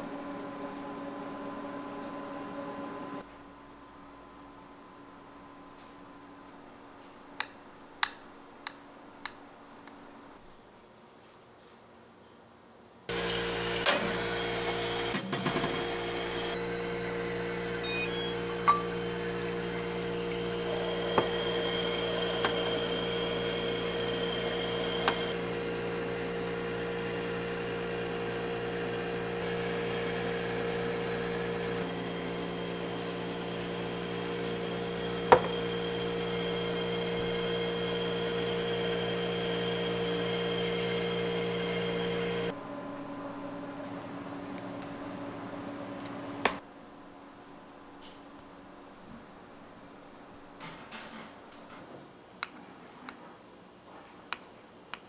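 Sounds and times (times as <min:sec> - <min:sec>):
shaved ice machine motor humming: 0:13.1 - 0:42.6.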